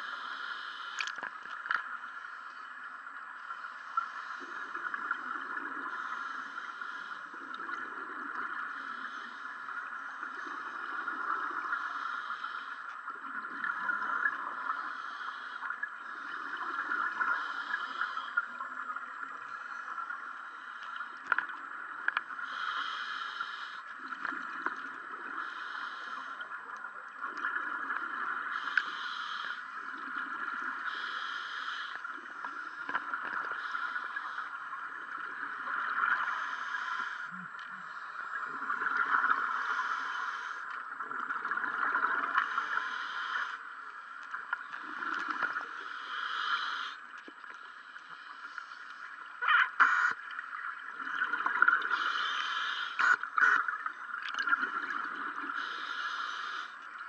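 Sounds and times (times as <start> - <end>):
steady hiss: 0.0 - 57.0
regulator bubbles underwater: 2.9 - 12.1, 32.0 - 40.0, 40.7 - 45.9, 49.1 - 52.4, 53.0 - 55.8.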